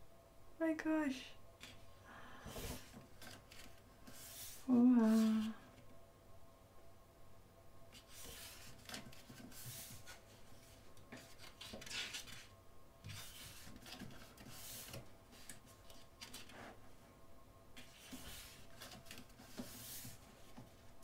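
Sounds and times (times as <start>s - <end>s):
book pages turning: 2.5s - 5.5s, 8.0s - 12.5s, 13.1s - 16.7s, 17.8s - 20.8s.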